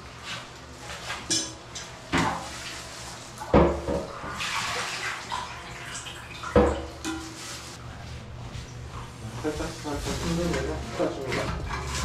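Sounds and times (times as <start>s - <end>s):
water sloshing in tank: 0.3s - 8.9s.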